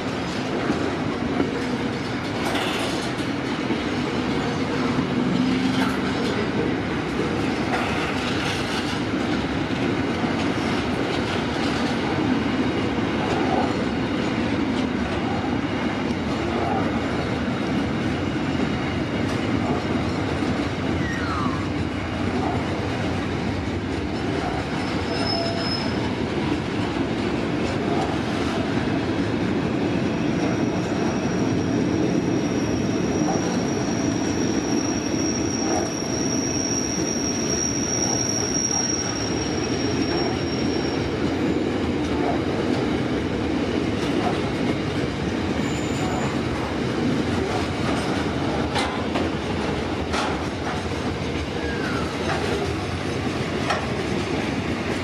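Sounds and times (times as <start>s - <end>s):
train wheels rumbling on rail: 0.0s - 55.0s
high thin wheel squeal: 24.9s - 26.0s, 31.0s - 41.0s.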